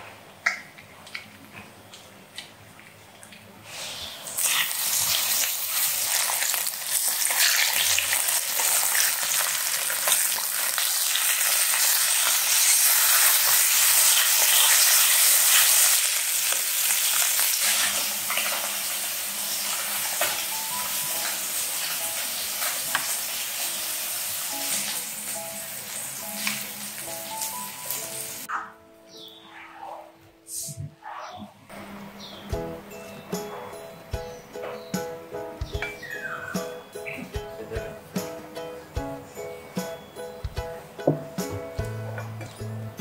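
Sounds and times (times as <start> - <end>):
fish sizzling in hot oil: 4.3 - 28.5.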